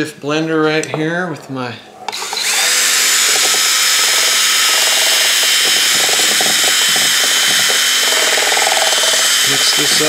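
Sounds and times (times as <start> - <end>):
cordless drill motor whine: 2.1 - 10.0.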